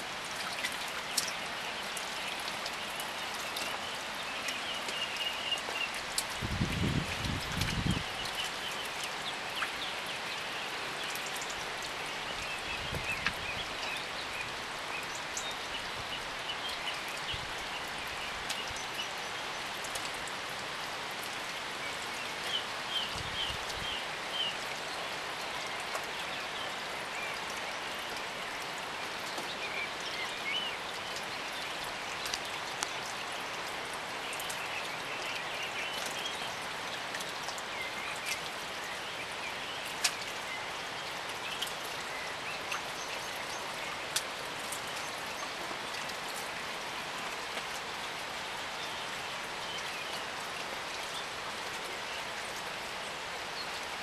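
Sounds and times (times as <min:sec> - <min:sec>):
steady rain: 0:00.0 - 0:54.0
drips: 0:00.1 - 0:14.0.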